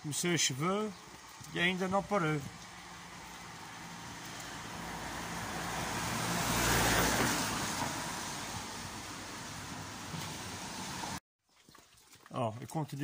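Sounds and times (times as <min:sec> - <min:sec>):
low engine hum: 0:02.4 - 0:11.2
tyre hiss on wet road: 0:02.8 - 0:11.2.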